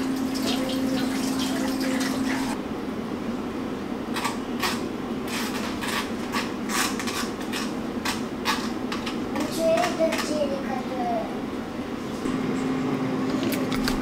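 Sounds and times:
kitchen tap running: 0.0s - 2.6s.

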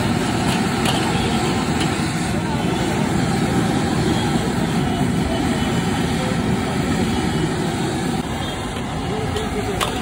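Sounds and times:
gas burner rushing: 0.0s - 10.0s.

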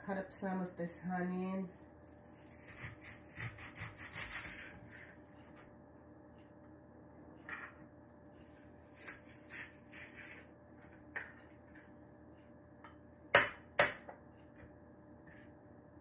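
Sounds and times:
knife scraping cutting board: 2.3s - 5.6s, 8.9s - 10.4s.

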